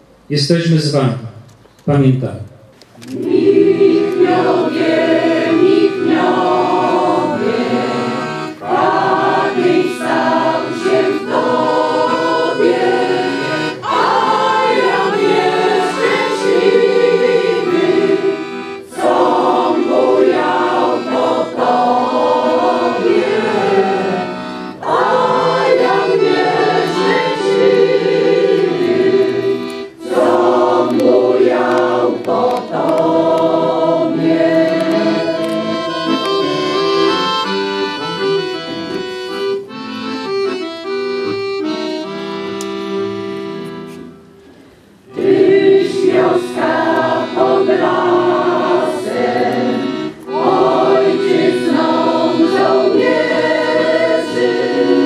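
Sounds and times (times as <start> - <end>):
choir singing: 3.0 - 39.1, 45.0 - 55.0.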